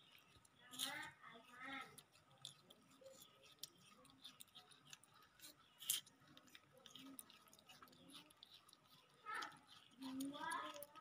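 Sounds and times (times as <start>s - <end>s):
monkeys chewing wetly: 0.0s - 11.0s.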